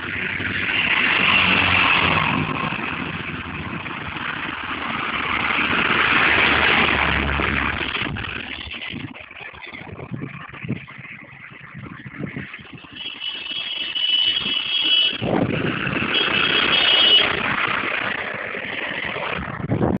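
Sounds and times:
truck passing: 0:00.0 - 0:12.9, 0:14.4 - 0:19.9
high-pitched horn blasts: 0:12.9 - 0:15.3, 0:16.0 - 0:17.4.

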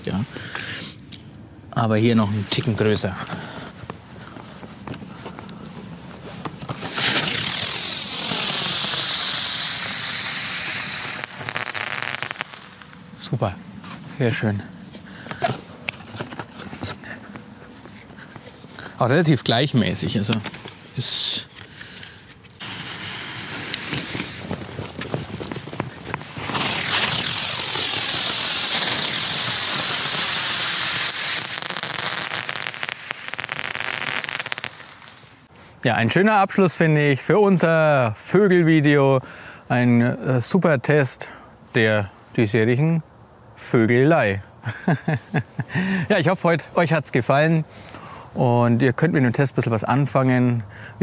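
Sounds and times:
firework crackling: 0:05.8 - 0:13.4, 0:18.9 - 0:35.5
firework rushing hiss: 0:06.6 - 0:13.0, 0:20.9 - 0:35.5.

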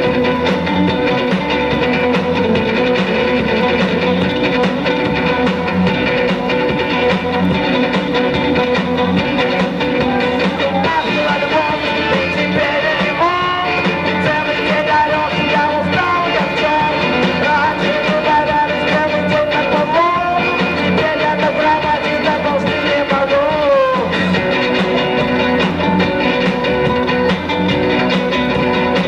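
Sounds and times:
rock band with guitar: 0:00.0 - 0:29.0
man singing into microphone: 0:10.0 - 0:24.3.

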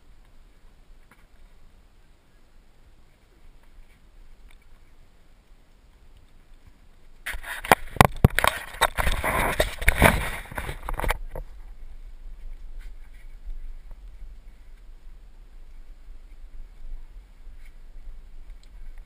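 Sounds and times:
handling noise on camera microphone: 0:06.6 - 0:14.9.

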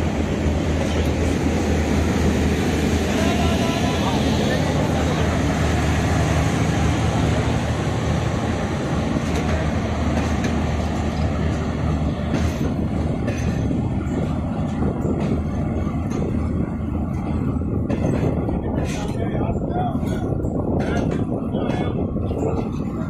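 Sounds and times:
train wheels rumbling on rail: 0:00.0 - 0:23.0
clicks and clanks over rail joints: 0:09.1 - 0:16.4, 0:17.1 - 0:19.4, 0:20.0 - 0:23.0.

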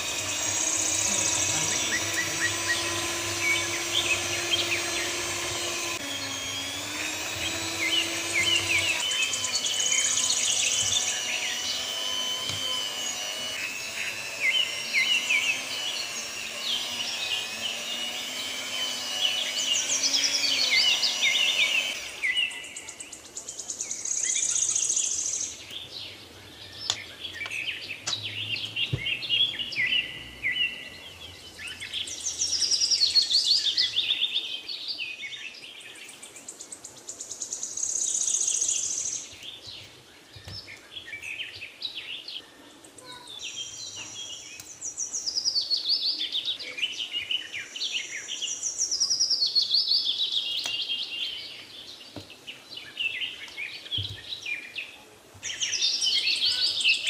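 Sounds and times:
birds chirping and trilling: 0:00.0 - 0:57.0.

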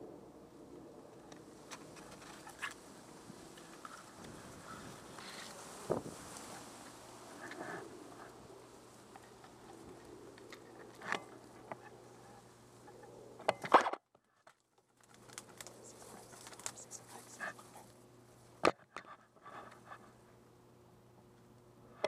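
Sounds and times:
tall grass rustling: 0:00.8 - 0:13.3, 0:15.0 - 0:18.6.

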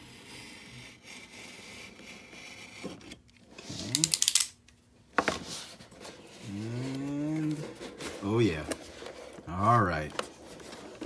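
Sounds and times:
blade scraping cardboard seal: 0:00.0 - 0:04.1
cardboard and tape crackling: 0:05.4 - 0:11.0.

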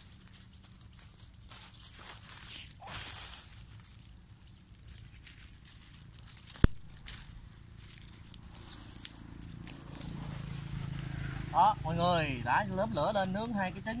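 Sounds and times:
dry leaves rustling: 0:00.0 - 0:14.0
fire crackling: 0:00.0 - 0:14.0
twig snapping: 0:01.5 - 0:10.2.

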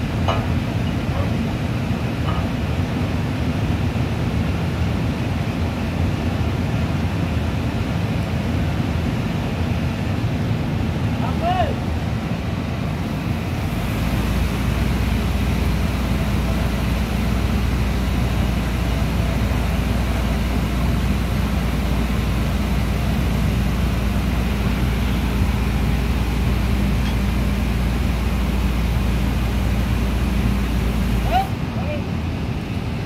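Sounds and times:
hoisting machinery droning: 0:13.0 - 0:31.6.

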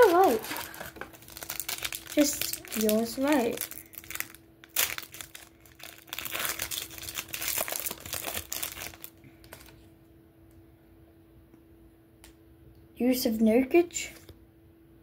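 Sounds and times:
foil wrapper crinkling and tearing: 0:00.0 - 0:09.8.

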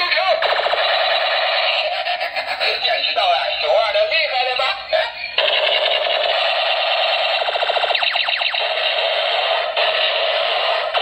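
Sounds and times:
toy rifle electronic tune: 0:00.0 - 0:02.1, 0:02.8 - 0:11.0.

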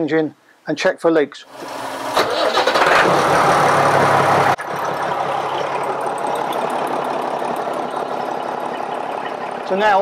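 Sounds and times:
boat engine idling: 0:03.4 - 0:10.0.

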